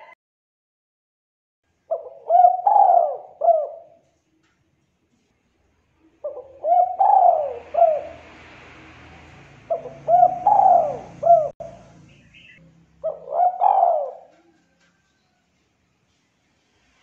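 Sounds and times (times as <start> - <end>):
dove cooing: 1.9 - 4.2, 6.2 - 8.5, 9.6 - 11.8, 12.4 - 14.8.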